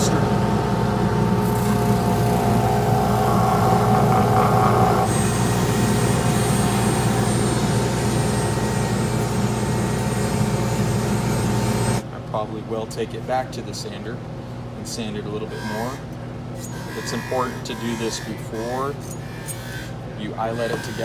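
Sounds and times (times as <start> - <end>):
disc sander motor humming: 0.0 - 12.0.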